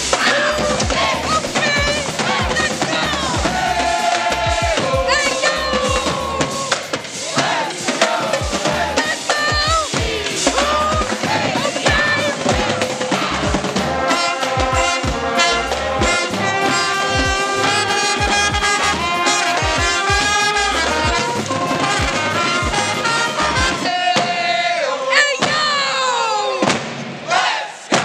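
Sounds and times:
low brass: 0:00.0 - 0:24.2
drum beat: 0:00.0 - 0:24.7
trumpets: 0:00.0 - 0:26.2
people whooping and shouting: 0:00.1 - 0:13.6.

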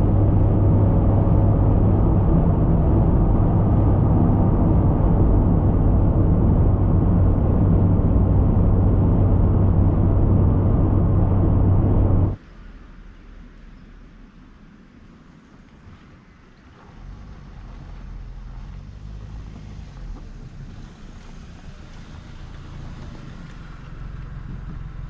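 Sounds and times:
low hum: 0:00.0 - 0:14.4
car road and engine noise: 0:00.0 - 0:25.0.

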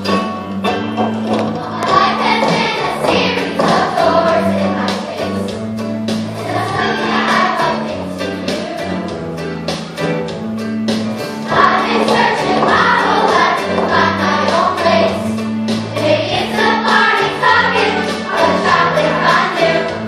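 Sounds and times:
youth choir singing: 0:01.4 - 0:05.6, 0:06.3 - 0:09.2, 0:11.4 - 0:20.0.

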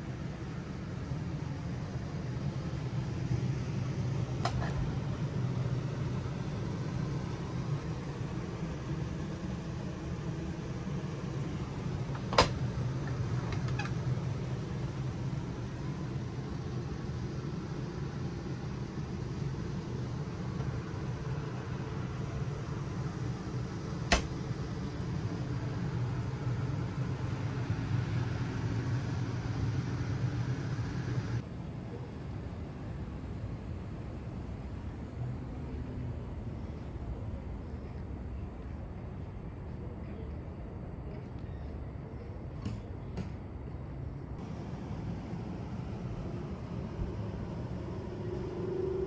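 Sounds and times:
low mechanical hum: 0:00.0 - 0:49.0
refrigerator door shutting click: 0:12.2 - 0:12.6, 0:24.1 - 0:24.4.

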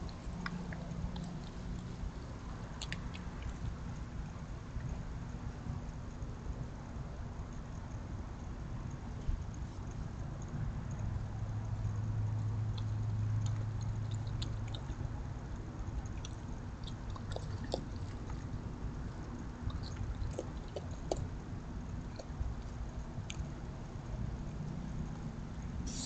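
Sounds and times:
animal chewing: 0:00.0 - 0:06.6, 0:09.5 - 0:26.0
background hiss: 0:25.8 - 0:26.0.

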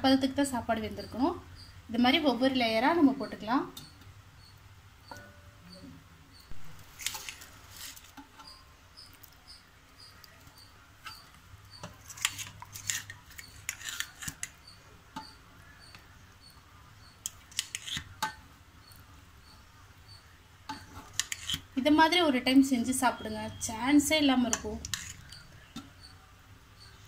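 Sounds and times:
utensils scraping and clinking on pot: 0:06.8 - 0:26.2.

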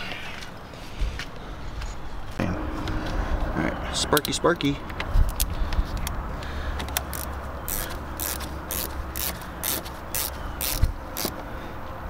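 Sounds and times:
ratchet wrench ratcheting: 0:06.9 - 0:11.4.

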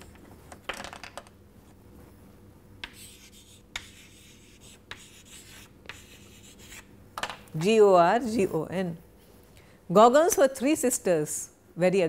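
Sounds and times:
chalk tapping board: 0:02.8 - 0:06.8
chalk scratching on chalkboard: 0:02.8 - 0:06.9.

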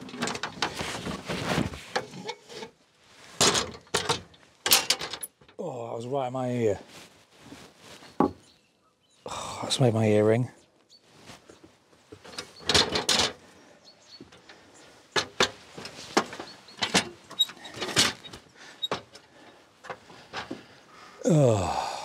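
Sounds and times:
sharp knocks and clatters: 0:03.4 - 0:05.2.

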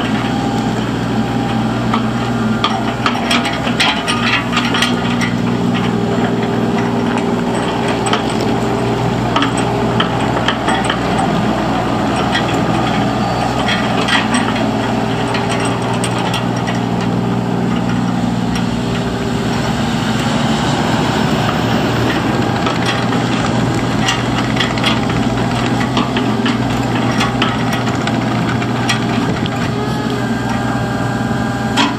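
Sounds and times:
diesel engine running: 0:00.0 - 0:31.9
tracks rolling over gravel: 0:00.0 - 0:31.9
undercarriage clicks and clatter: 0:02.6 - 0:19.7, 0:21.4 - 0:29.8.

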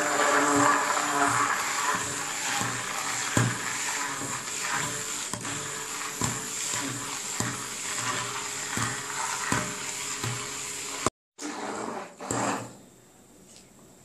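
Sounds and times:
immersion blender running: 0:00.0 - 0:11.1.

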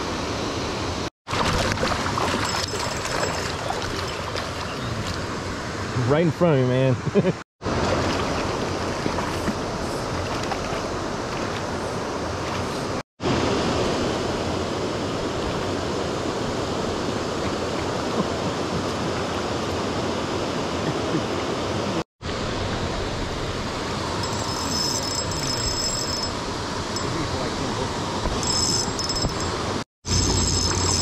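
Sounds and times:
stream water rushing: 0:00.0 - 0:06.9, 0:07.6 - 0:31.0.

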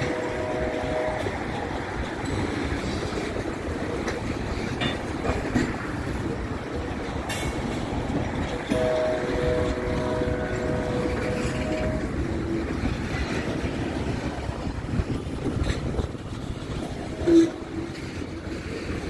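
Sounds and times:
freight train wheels rumbling: 0:00.0 - 0:19.0
wheels clicking and clanking: 0:00.0 - 0:19.0
two-note tone: 0:08.7 - 0:13.4.

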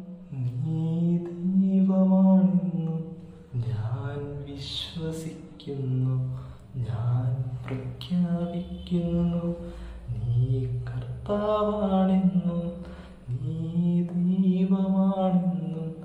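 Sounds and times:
man singing unaccompanied: 0:00.0 - 0:16.0.

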